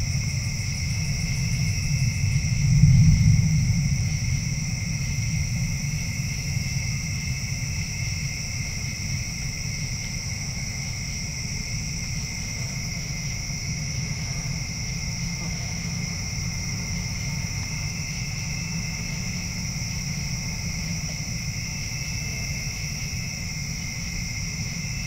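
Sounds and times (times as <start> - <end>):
low rumble: 0.0 - 8.2
insects trilling: 0.0 - 25.0.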